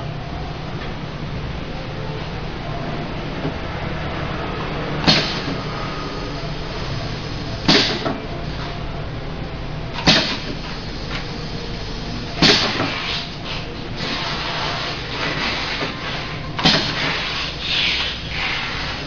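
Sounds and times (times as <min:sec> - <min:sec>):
steady low hum: 0:00.0 - 0:19.0
machine piston clacks: 0:05.0 - 0:05.6, 0:07.6 - 0:08.2, 0:10.0 - 0:11.2, 0:12.4 - 0:13.2, 0:16.6 - 0:18.6
brief hiss of air: 0:12.4 - 0:19.0.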